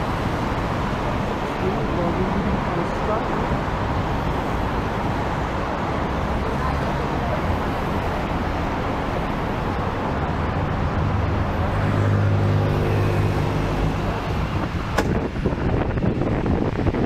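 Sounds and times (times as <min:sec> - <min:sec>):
bus engine hum: 0:00.0 - 0:17.0
road and traffic noise: 0:00.0 - 0:17.0
wind buffeting microphone: 0:13.6 - 0:17.0.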